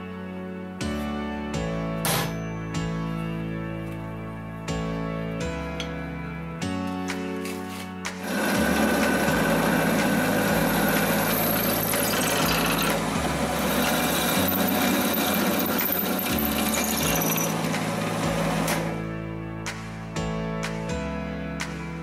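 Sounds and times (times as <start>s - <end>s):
drill press boring through steel: 8.2s - 18.9s.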